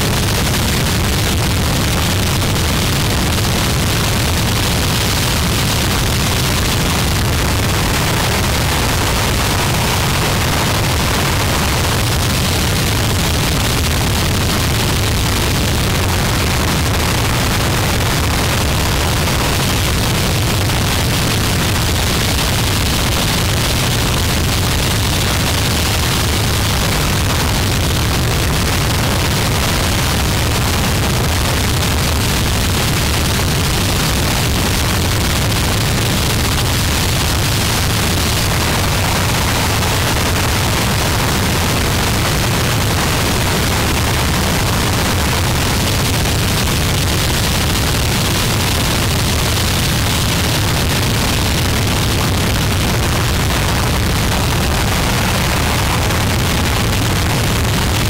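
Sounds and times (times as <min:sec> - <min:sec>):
harsh distorted static noise: 0:00.0 - 0:58.0.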